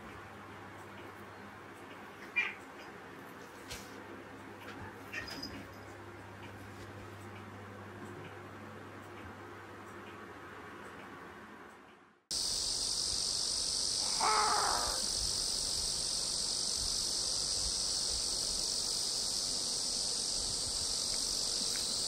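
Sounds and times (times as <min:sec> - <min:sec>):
high-pitched insect chorus: 0:12.3 - 0:22.0
crow caw: 0:14.0 - 0:15.1.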